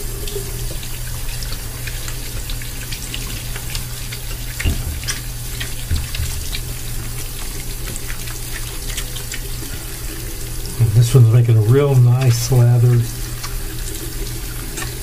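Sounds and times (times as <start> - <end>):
faucet running into basin: 0.0 - 15.0
small wet splashes: 0.0 - 15.0
dull knocks: 4.6 - 5.2, 5.8 - 6.5.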